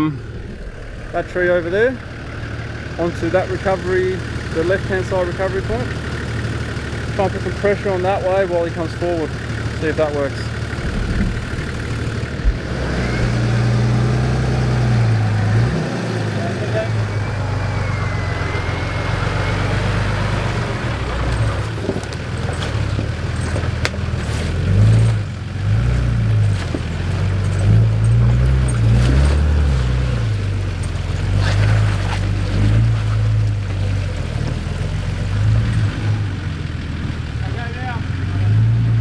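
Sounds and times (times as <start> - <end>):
off-road engine revving: 0.0 - 39.0.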